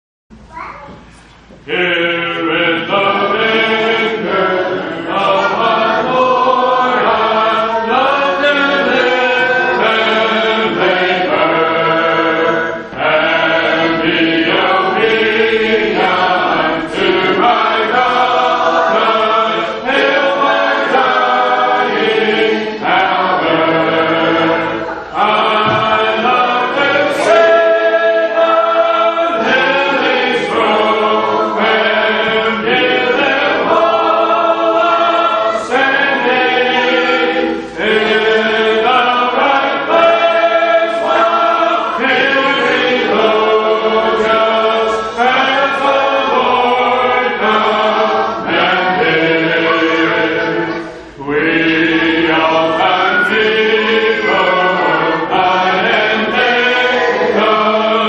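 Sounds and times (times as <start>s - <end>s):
congregation singing a hymn: 1.4s - 58.0s.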